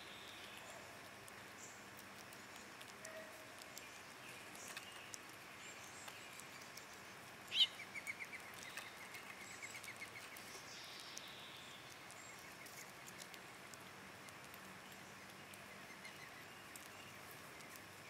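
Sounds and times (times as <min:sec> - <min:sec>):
squirrel chewing clicks: 0:00.0 - 0:18.0
woodland hiss: 0:00.0 - 0:18.0
bird call and trill: 0:07.5 - 0:11.6.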